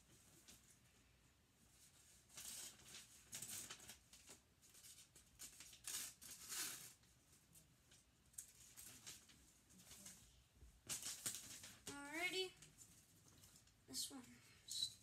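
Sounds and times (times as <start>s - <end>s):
paper rustling: 1.8s - 13.8s.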